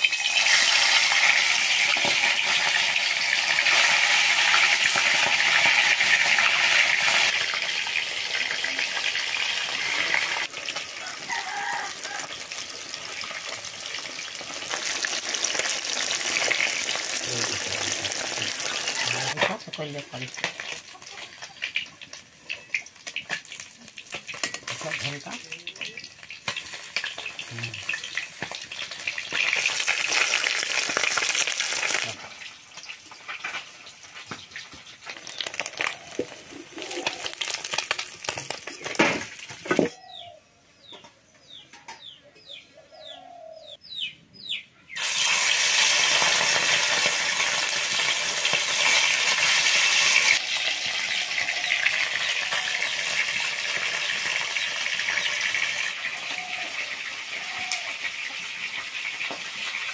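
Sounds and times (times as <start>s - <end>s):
fish sizzling in hot oil: 0.0s - 39.7s, 45.0s - 59.9s
birds chirping: 39.9s - 45.0s.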